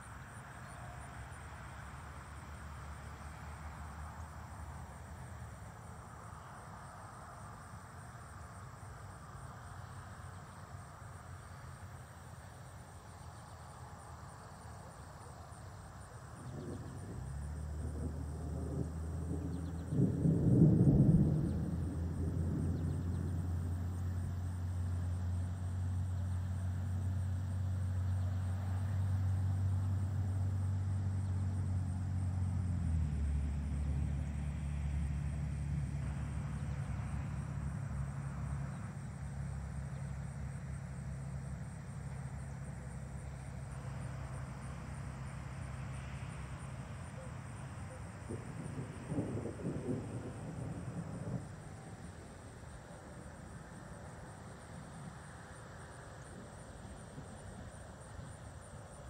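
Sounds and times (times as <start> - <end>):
faint insects chirping: 0.0 - 59.0
steady low rumble: 14.2 - 56.3.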